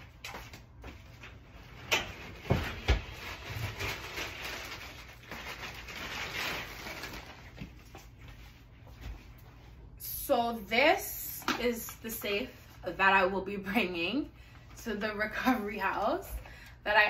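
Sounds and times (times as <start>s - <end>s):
rustling and shuffling: 0.0s - 10.0s.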